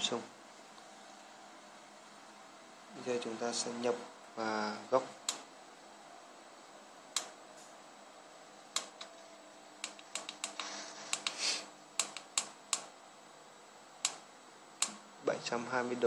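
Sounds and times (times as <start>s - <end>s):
push buttons clicking: 8.7s - 9.2s, 9.8s - 10.6s, 12.0s - 12.9s, 14.8s - 15.0s.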